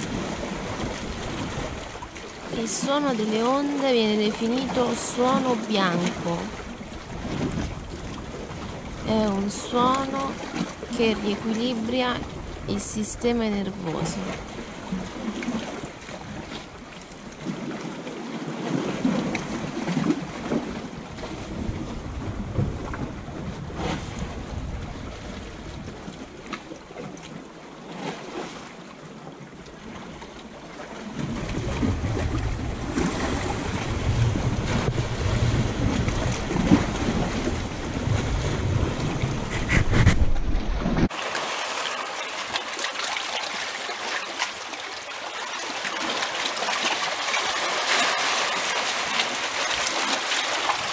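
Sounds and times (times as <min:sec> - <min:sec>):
wind buffeting microphone: 0:00.0 - 0:16.9, 0:18.6 - 0:26.8, 0:30.9 - 0:41.1
waves lapping among rocks: 0:00.0 - 0:50.9.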